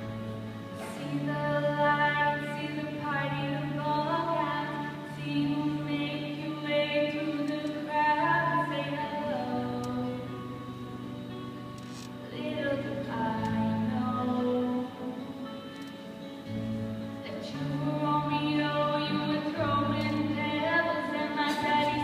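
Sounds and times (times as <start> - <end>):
girl singing: 0.8 - 10.7, 12.3 - 15.6, 17.3 - 22.0.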